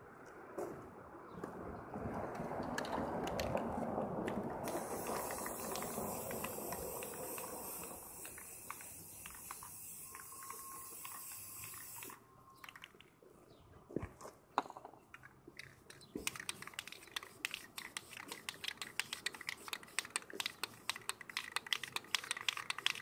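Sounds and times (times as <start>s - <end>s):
spray can hissing: 4.6s - 12.2s, 16.2s - 23.0s.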